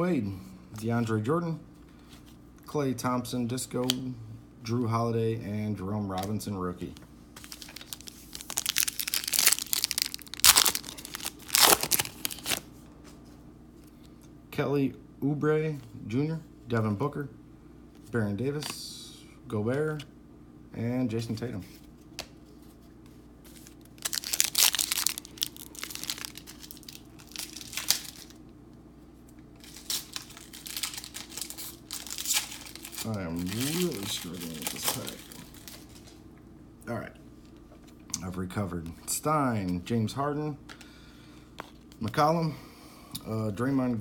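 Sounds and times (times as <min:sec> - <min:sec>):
wrapper crinkling and tearing: 0:07.4 - 0:12.7, 0:23.5 - 0:28.4, 0:29.6 - 0:36.2.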